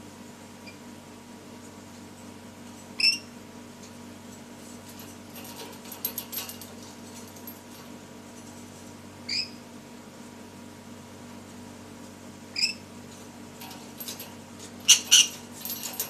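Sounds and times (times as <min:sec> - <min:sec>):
bird clambering on cage bars: 0:04.9 - 0:08.0, 0:13.6 - 0:16.0.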